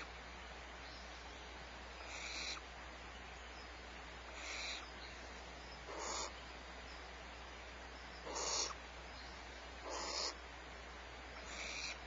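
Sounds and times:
low electrical hum: 0.0s - 12.0s
owl hissing begging call: 2.0s - 2.7s, 4.3s - 4.9s, 5.8s - 6.4s, 8.2s - 8.8s, 9.8s - 10.4s, 11.4s - 12.0s.

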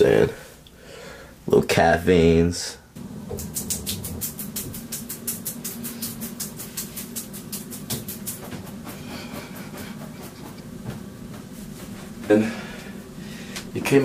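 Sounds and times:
steady low hum: 2.7s - 14.0s
towel rubbing wet hair: 3.0s - 10.8s.

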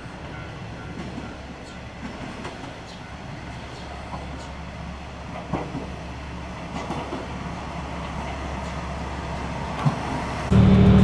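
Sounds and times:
train wheels clacking on rails: 0.0s - 10.5s
diesel engine rumble: 3.6s - 11.0s.

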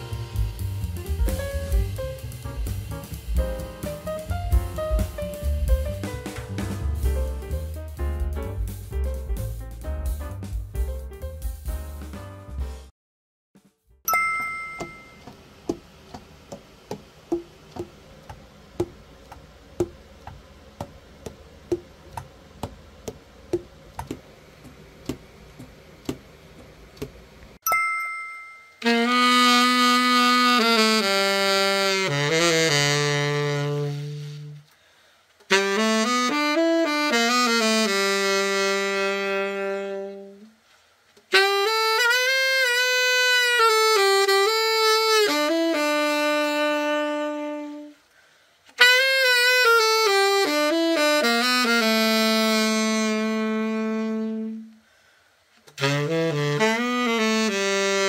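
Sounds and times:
two-tone ding: 14.1s - 15.3s, 27.6s - 28.9s
tenor saxophone long notes: 28.8s - 34.8s, 35.5s - 40.6s, 41.3s - 48.1s, 48.8s - 54.9s, 55.8s - 58.0s.

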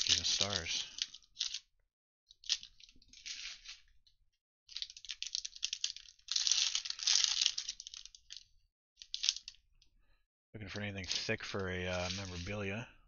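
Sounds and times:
foil wrapper crinkling and tearing: 0.0s - 1.6s, 2.4s - 3.9s, 4.7s - 9.6s.

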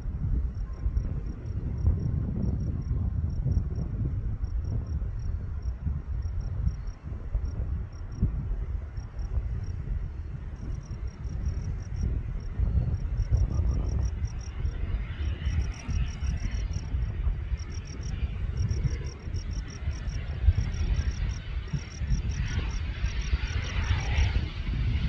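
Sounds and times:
faint jet engine: 0.0s - 25.0s
steady low rumble: 0.0s - 25.0s
insects chirping: 9.0s - 24.4s.

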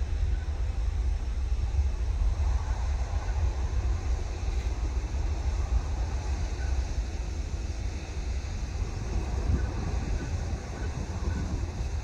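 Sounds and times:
distant jet engine rumble: 0.0s - 12.0s
wind noise on microphone: 0.0s - 12.0s.

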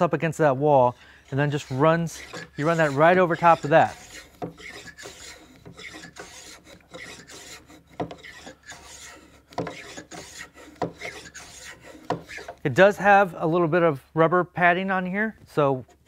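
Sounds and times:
plane shaving wood: 0.8s - 12.6s.

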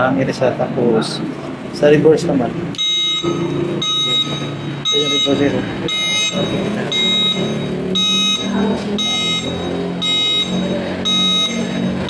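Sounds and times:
hub motor humming: 0.0s - 12.0s
high reverse warning beeps: 2.8s - 12.0s.

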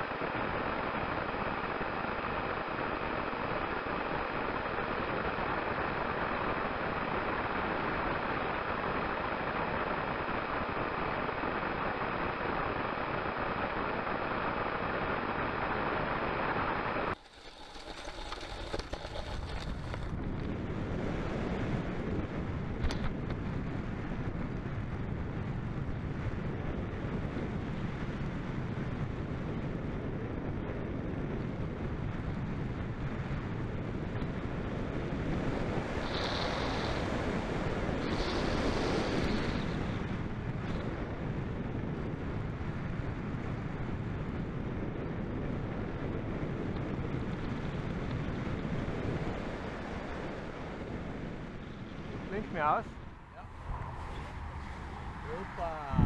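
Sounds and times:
airflow rushing over microphone: 33.7s - 56.0s.

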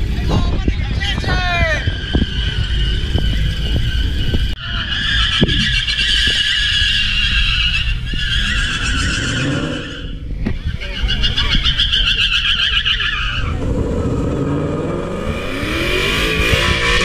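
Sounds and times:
low engine rumble: 0.0s - 17.0s
car tires squealing: 1.1s - 14.4s.

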